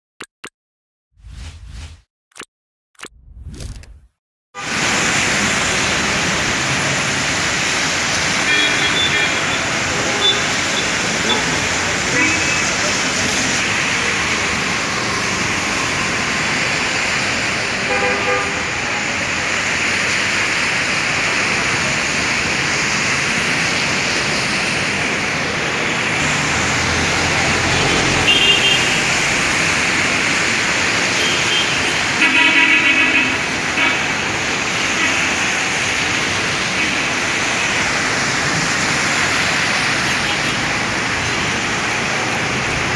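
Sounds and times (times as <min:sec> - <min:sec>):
heavy rain: 0:04.6 - 0:42.9
tyres hissing on water: 0:04.6 - 0:42.9.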